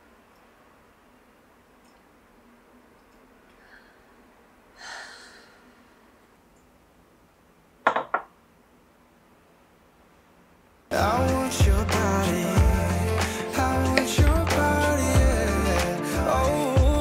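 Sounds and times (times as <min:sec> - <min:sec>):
soft breathy sigh: 0:03.5 - 0:06.2.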